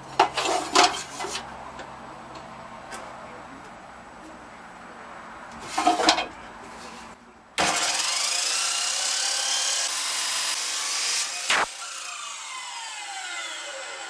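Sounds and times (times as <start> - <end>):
chop saw grinding steel: 7.6 - 14.0.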